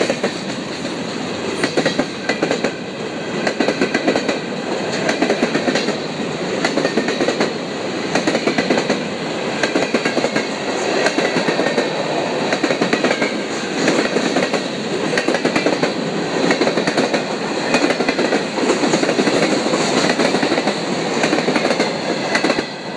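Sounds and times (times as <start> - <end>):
wheels clacking over rail joints: 9.6 - 22.7.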